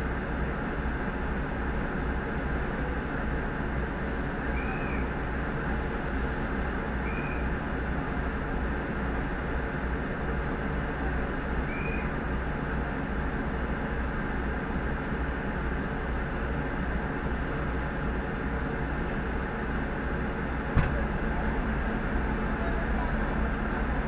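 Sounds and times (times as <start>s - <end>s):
fire engine idling: 0.0s - 24.0s
sharp knock: 20.8s - 21.0s.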